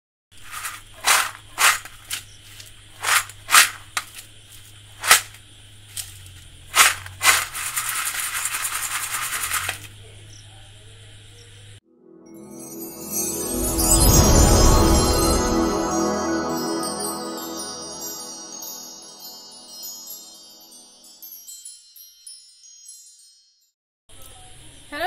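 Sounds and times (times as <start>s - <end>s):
fried snacks rattling on steel plate: 0.4s - 4.2s, 6.0s - 9.9s
music: 11.8s - 23.7s.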